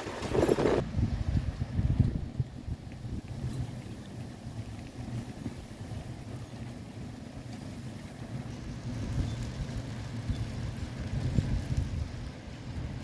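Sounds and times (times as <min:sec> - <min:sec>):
wind gusting against microphone: 0:00.0 - 0:13.0
heavy rain hiss: 0:03.6 - 0:13.0.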